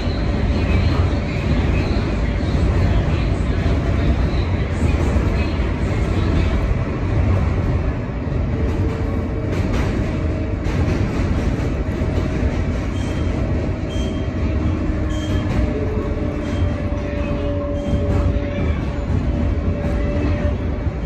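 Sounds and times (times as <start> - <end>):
subway car wheels rumbling: 0.0 - 21.0
wheel squeals: 12.9 - 19.1.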